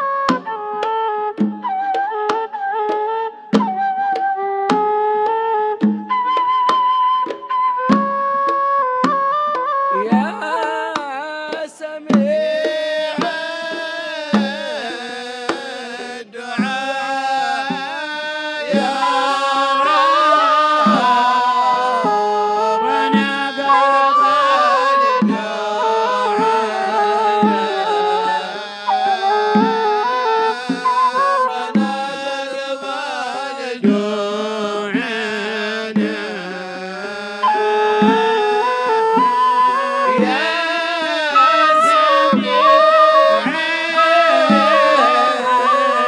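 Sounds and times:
hand drums beating: 0.0s - 33.0s, 33.8s - 46.0s
reed flute: 0.0s - 46.0s
men singing: 10.0s - 46.0s.

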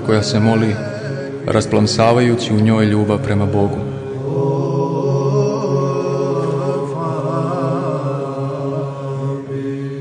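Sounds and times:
deep voices chanting: 0.0s - 10.0s
steady drone: 0.0s - 10.0s.

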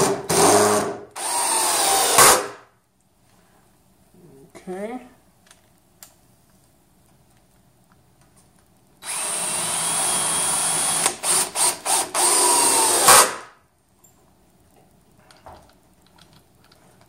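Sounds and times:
cordless drill driving a screw: 0.3s - 2.4s, 9.0s - 13.4s.

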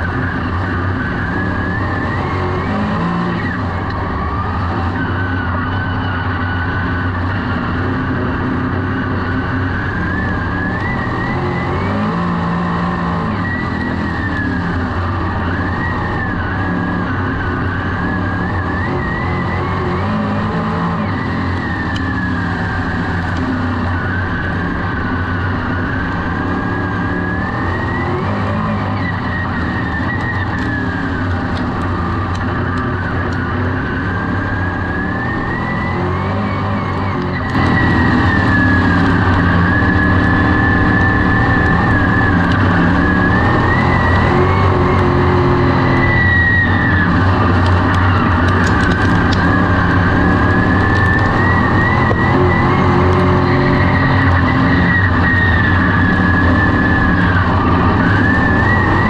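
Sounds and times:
race car engine running hard: 0.0s - 59.0s.

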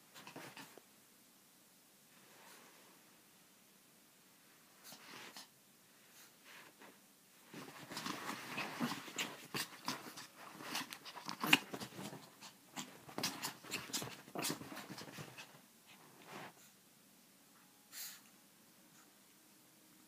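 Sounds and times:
small dog snarling: 7.8s - 15.6s.

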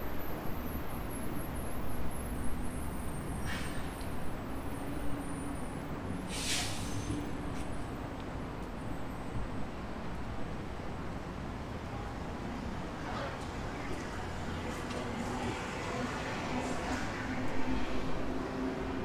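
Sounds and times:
road traffic rumble: 0.0s - 19.0s
short hisses: 6.3s - 7.1s.

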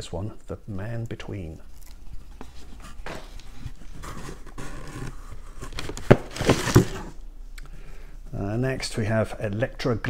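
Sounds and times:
plastic wrapping crinkling: 1.6s - 7.1s
plastic cases clacking together: 5.7s - 7.2s.

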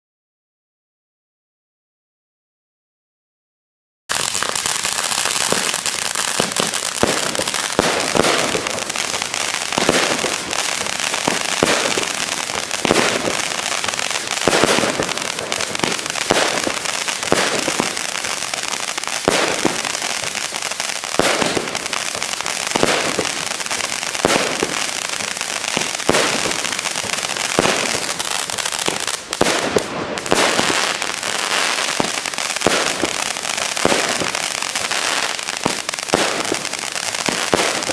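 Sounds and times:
firework launch bangs: 4.1s - 18.0s, 24.2s - 34.8s
firework hiss and crackle: 4.1s - 37.9s.

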